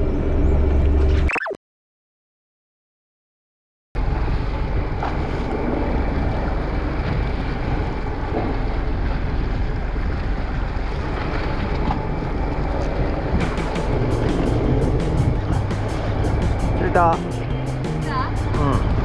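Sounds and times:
sea washing: 4.0s - 17.6s
wind buffeting microphone: 4.0s - 17.6s
boat noise: 4.0s - 19.0s.

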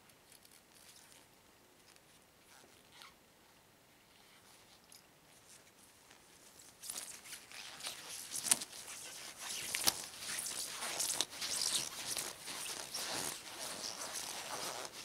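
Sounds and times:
rubber gloves rustling: 4.2s - 15.0s.

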